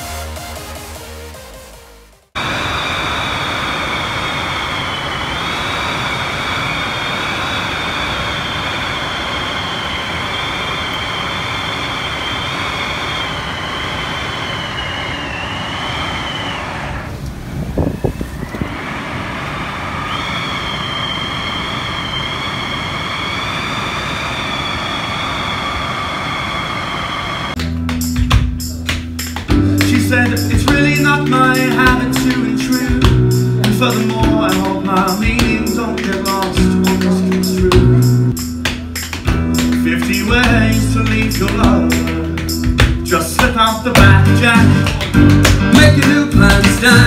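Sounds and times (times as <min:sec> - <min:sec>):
high wavering whistle: 0:02.8 - 0:17.0, 0:19.8 - 0:27.6
wind rushing over microphone: 0:13.4 - 0:24.4.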